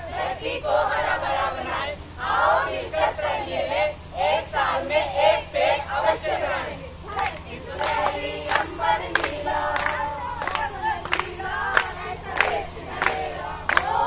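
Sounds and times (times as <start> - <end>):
group of people singing: 0.0 - 14.0
hands clapping on a beat: 7.1 - 14.0.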